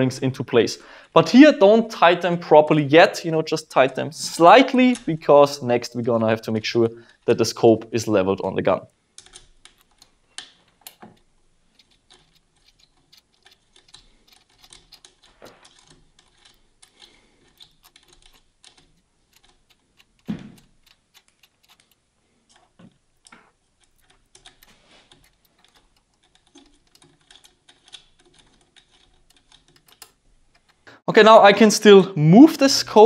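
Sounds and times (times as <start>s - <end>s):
hex key metal clicks: 23.2s - 30.8s.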